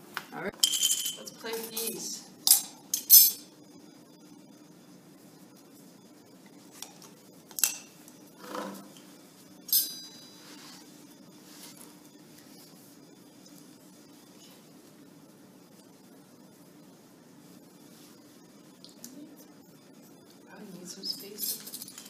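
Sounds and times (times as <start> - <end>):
spoon and plastic cups clinking: 0.6 - 1.9.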